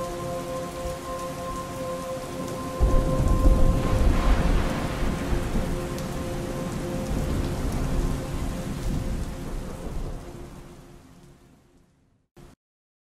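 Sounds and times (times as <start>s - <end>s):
heavy rain: 0.0s - 12.0s
low rolling thunder rumble: 2.8s - 10.8s.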